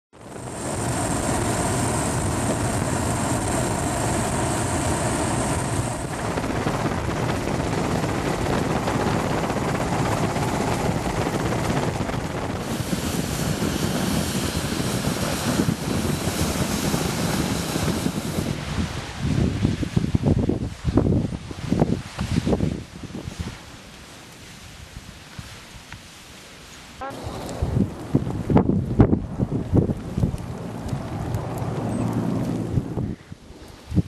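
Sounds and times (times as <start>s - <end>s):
aircraft engine noise: 0.1s - 19.2s, 27.0s - 34.0s.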